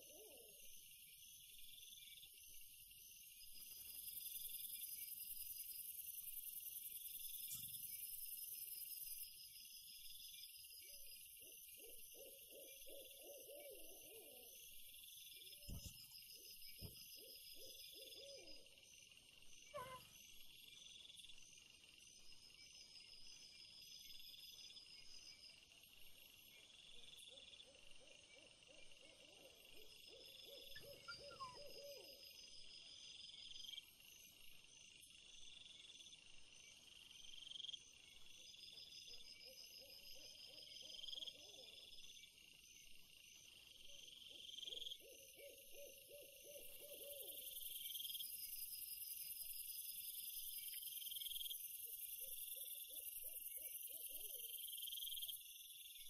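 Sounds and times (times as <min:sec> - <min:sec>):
insects chirping: 0:00.0 - 0:56.0
hooting animal call: 0:19.7 - 0:20.1.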